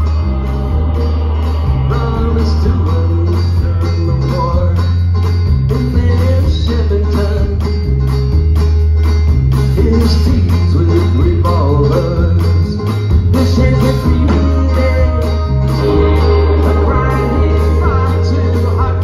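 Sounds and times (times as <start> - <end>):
wavering melody line: 0.0 - 5.1, 15.1 - 19.0
steady drum beat: 0.0 - 7.6, 9.3 - 19.0
deep bass line: 0.0 - 19.0.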